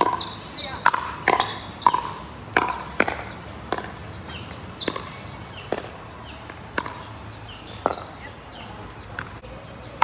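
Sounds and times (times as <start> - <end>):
paddles hitting plastic ball: 0.0 - 5.1.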